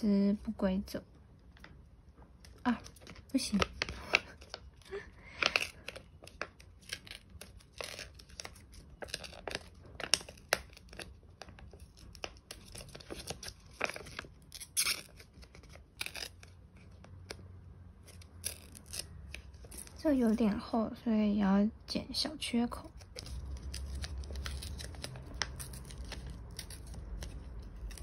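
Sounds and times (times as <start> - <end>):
paper tearing: 5.4 - 11.1, 18.1 - 20.1, 22.9 - 28.0.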